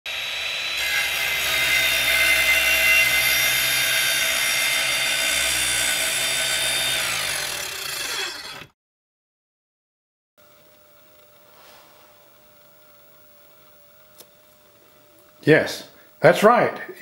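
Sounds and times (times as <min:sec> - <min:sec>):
power tool cutting wood: 0:00.1 - 0:08.8.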